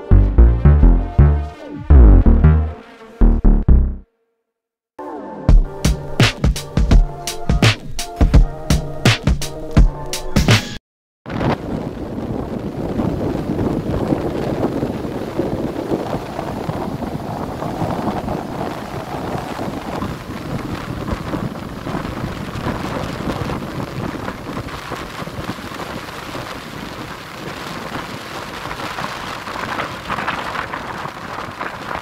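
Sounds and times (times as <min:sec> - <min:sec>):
waves breaking on shore: 0:11.3 - 0:32.0
wind buffeting microphone: 0:11.3 - 0:32.0.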